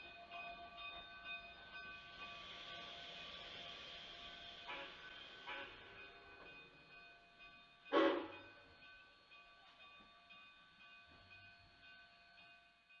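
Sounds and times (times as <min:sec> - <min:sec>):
steam locomotive whistle toot: 0:04.4 - 0:05.8, 0:07.9 - 0:08.4.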